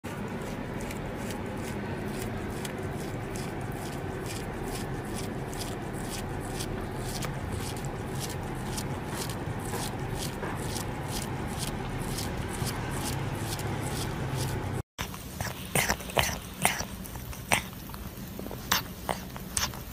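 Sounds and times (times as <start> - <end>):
cat licking: 0.0 - 19.9.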